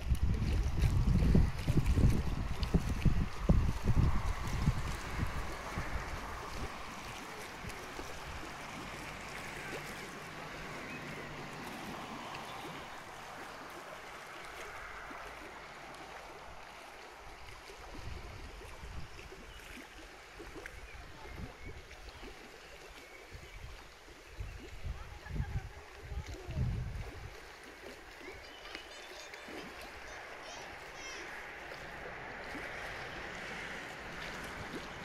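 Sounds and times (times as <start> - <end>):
wind buffeting microphone: 0.0 - 22.4, 23.1 - 28.4
water rushing over spillway: 0.0 - 35.0.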